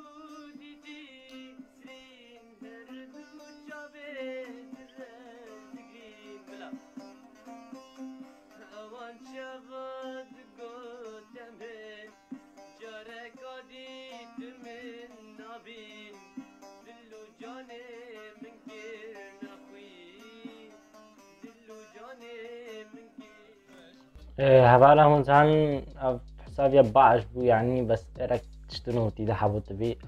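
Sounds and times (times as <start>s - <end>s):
young man singing: 0.0s - 7.4s, 8.5s - 30.0s
low instrumental drone: 24.2s - 30.0s.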